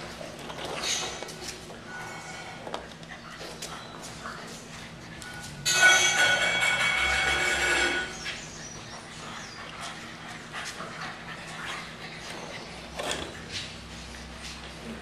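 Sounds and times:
puppies scuffling: 0.0 - 15.0
puppy whining: 6.6 - 15.0.

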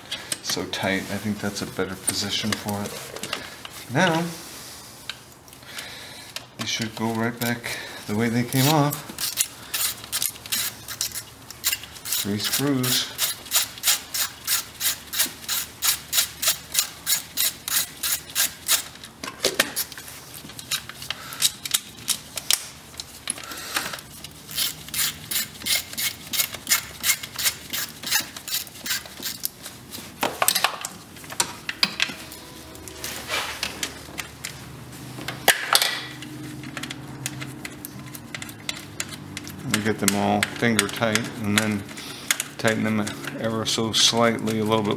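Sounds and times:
ratchet wrench clicking: 8.6 - 19.0, 19.8 - 29.5, 35.5 - 43.2.

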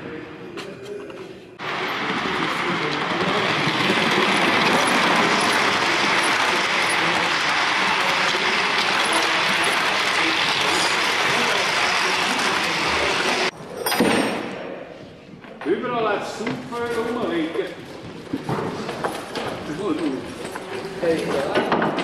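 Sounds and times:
model train wheels rolling on rails: 1.6 - 13.5.

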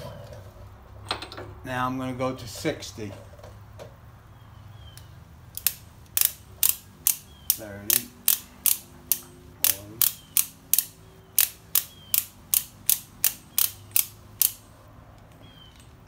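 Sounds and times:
socket ratchet clicking: 5.5 - 14.7.

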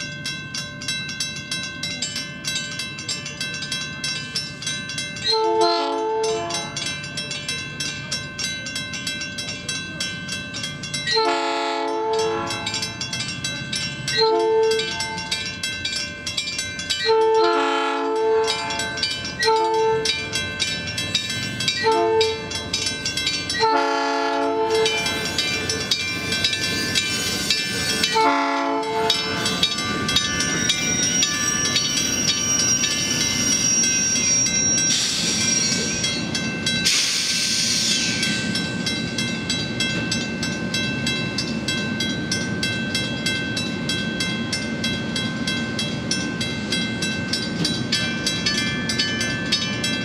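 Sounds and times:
crossing bell ringing: 0.0 - 50.0
train rumbling through crossing: 0.0 - 50.0
train air horn blasts: 5.3 - 6.8, 11.2 - 12.8, 17.1 - 18.8, 21.8 - 22.4, 23.6 - 24.8, 28.2 - 29.1.

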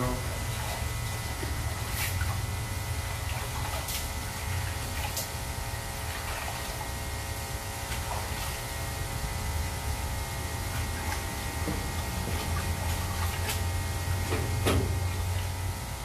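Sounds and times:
water sloshing in a sink: 0.0 - 15.9
steady electrical hum: 0.0 - 16.0
short splashes: 0.4 - 7.0, 7.7 - 8.8, 10.6 - 15.2.

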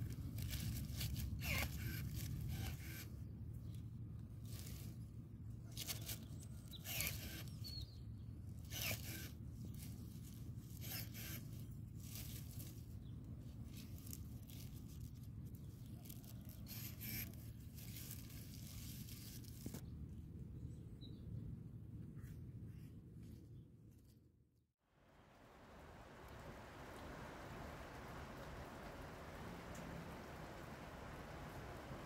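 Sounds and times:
twigs rustling: 0.0 - 3.0, 4.4 - 5.0, 8.7 - 19.8
low steady background hum: 0.0 - 32.0.

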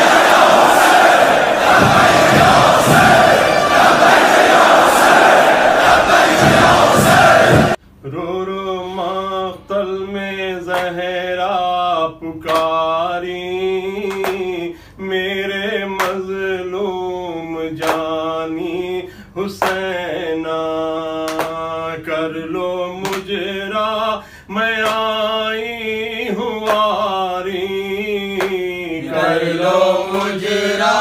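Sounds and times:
loud rushing noise: 0.0 - 7.8
man singing a slow lament: 8.0 - 31.0.

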